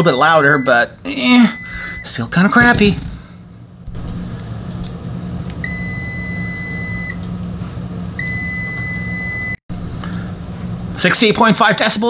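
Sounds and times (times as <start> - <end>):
steady low hum: 0.0 - 12.0
multimeter continuity beep: 1.5 - 2.2, 5.6 - 7.2, 8.2 - 9.6.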